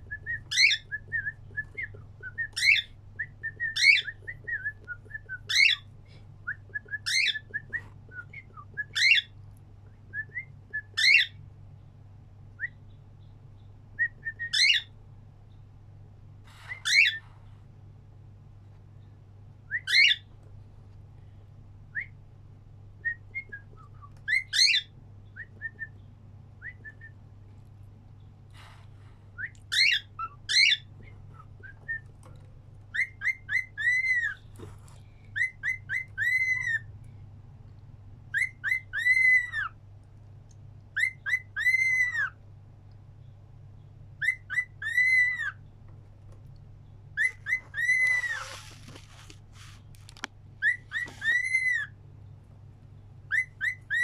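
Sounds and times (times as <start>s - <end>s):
faint low hum: 0.0s - 54.0s
cockatiel whistling: 0.1s - 5.8s, 6.4s - 9.3s, 10.1s - 11.4s, 14.0s - 14.9s, 19.7s - 20.2s, 23.0s - 25.9s, 29.4s - 32.1s, 32.9s - 34.4s, 35.4s - 36.9s, 38.3s - 39.7s, 41.0s - 42.4s, 44.2s - 45.6s, 47.2s - 48.6s, 50.6s - 51.9s, 53.3s - 54.0s.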